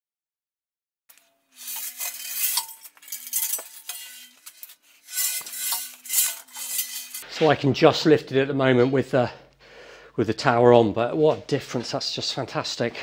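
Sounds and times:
metal clinking and scraping: 1.1s - 7.3s
chains rattling: 1.6s - 7.2s.

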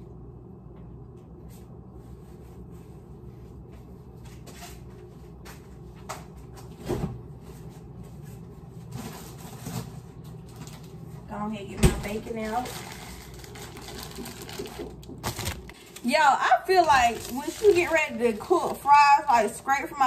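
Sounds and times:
steady low hum: 0.0s - 20.0s
knocks and bumps in kitchen: 11.7s - 12.3s.

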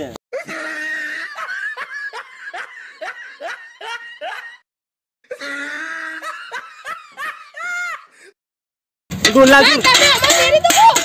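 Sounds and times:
person laughing: 0.4s - 4.6s, 5.3s - 8.1s.

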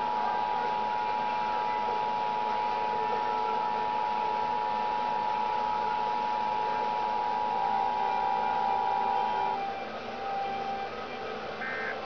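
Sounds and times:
two-tone alert signal: 11.6s - 12.0s.

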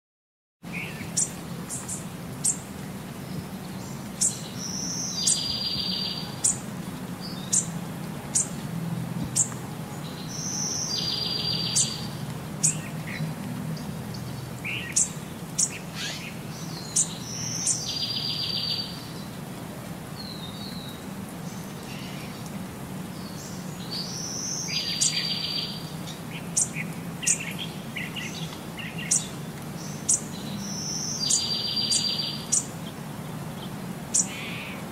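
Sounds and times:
bird chirping: 0.7s - 2.6s, 3.3s - 8.6s, 9.3s - 13.2s, 13.8s - 19.4s, 23.2s - 33.0s, 33.6s - 34.8s.

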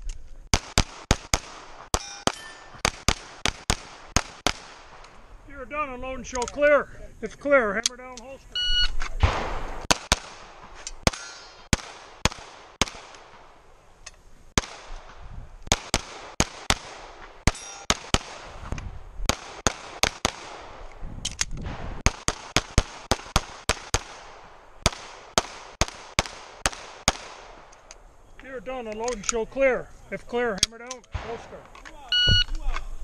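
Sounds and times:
pistol shots: 0.5s - 5.1s, 9.2s - 13.6s, 14.6s - 18.6s, 19.2s - 20.8s, 21.6s - 27.7s.

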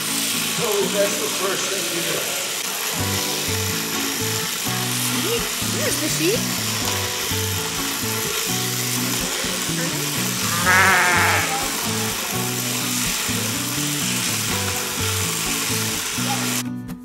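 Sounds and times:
background music: 0.0s - 17.0s
sheep bleating: 10.4s - 12.1s.

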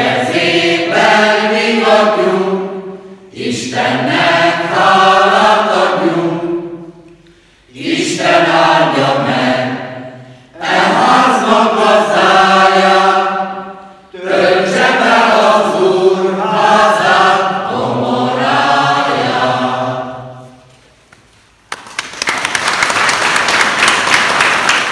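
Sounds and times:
mixed choir singing: 0.0s - 20.7s
applause: 21.6s - 24.9s.

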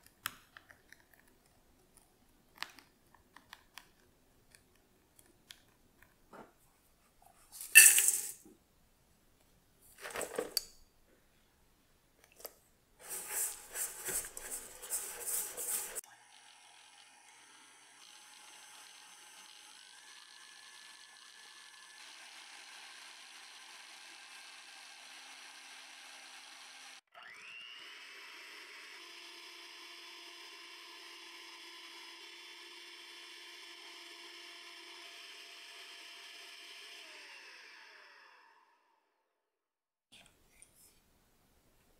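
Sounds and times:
sugar tipped into metal bowl: 7.6s - 8.4s
wire whisk scraping steel bowl: 13.0s - 16.0s
electric hand mixer whirring: 13.0s - 39.0s.

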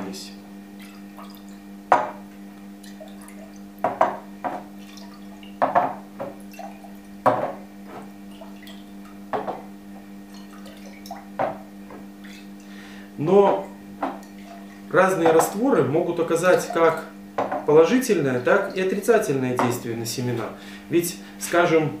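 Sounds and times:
steady low hum: 0.0s - 22.0s
liquid sloshing: 0.8s - 20.8s
glass jar knocking on table: 1.9s - 2.2s, 3.8s - 4.7s, 5.6s - 6.4s, 7.2s - 8.1s, 9.3s - 9.7s, 11.4s - 12.0s, 17.4s - 17.7s.

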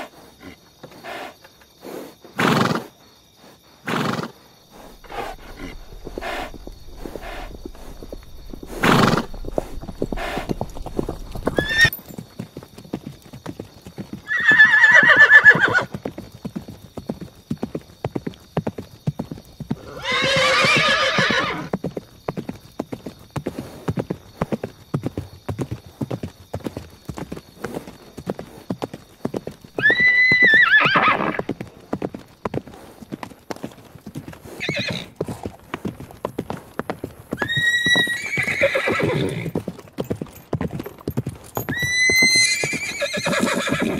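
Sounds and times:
horse hooves clip-clopping: 4.0s - 43.9s
horse neighing: 4.8s - 12.0s, 14.3s - 15.9s, 19.8s - 21.7s, 29.8s - 31.5s, 34.6s - 35.1s, 37.4s - 39.6s, 41.7s - 43.9s.

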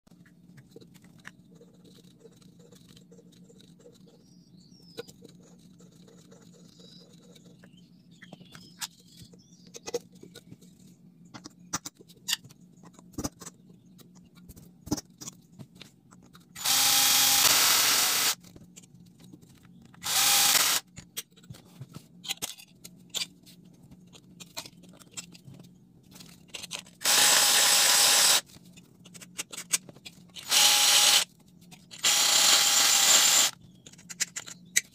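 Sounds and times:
electric drill whining: 16.6s - 18.4s, 20.0s - 20.8s, 27.0s - 28.4s, 30.4s - 31.2s, 32.0s - 33.6s.

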